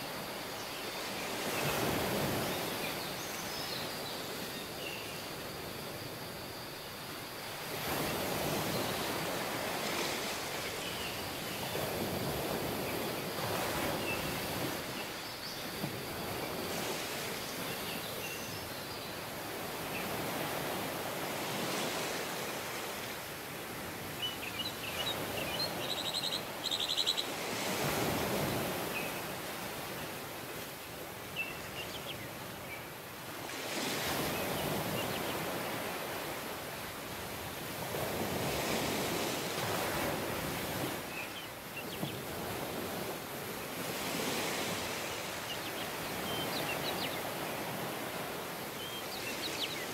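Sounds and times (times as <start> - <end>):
ocean surf washing ashore: 0.0 - 49.9
birds chirping: 24.2 - 27.3.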